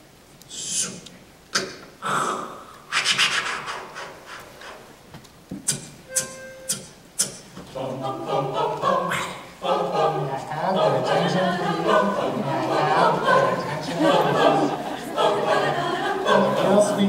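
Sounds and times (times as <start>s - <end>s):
beatboxing into a microphone: 0.5s - 4.9s, 5.6s - 7.6s
group singing a cappella: 6.1s - 17.0s.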